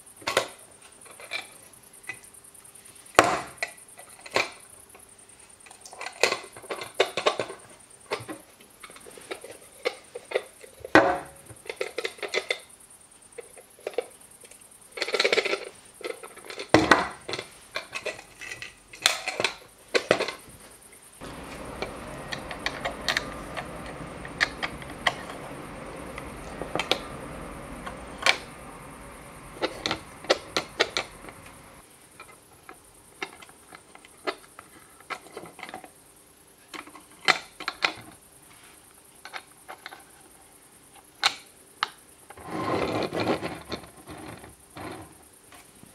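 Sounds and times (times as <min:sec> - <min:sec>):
steady hiss: 0:00.0 - 0:35.1.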